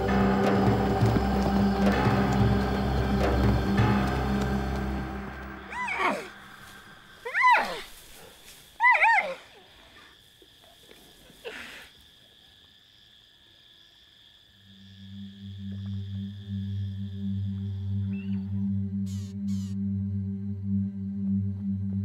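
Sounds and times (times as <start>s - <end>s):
zebra barking calls: 5.5s - 6.4s.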